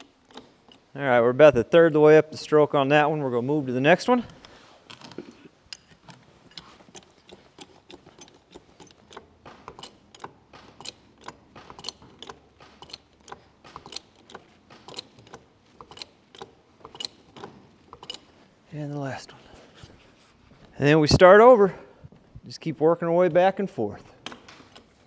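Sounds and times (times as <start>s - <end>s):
timber building creaking: 6.6s - 18.4s.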